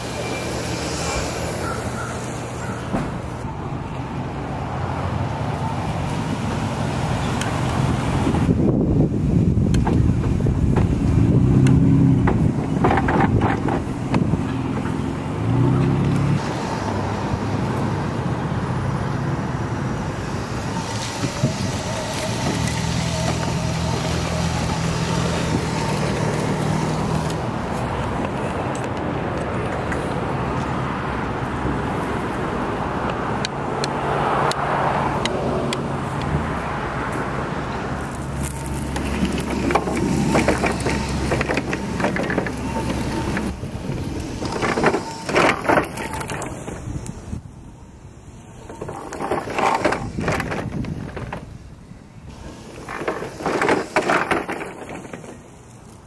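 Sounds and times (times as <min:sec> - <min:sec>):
road and traffic noise: 0:00.0 - 0:56.0
power wheelchair rolling and rattling: 0:05.6 - 0:16.7, 0:20.4 - 0:30.2, 0:38.0 - 0:47.4, 0:48.4 - 0:56.0
wheelchair motors humming: 0:52.3 - 0:55.4.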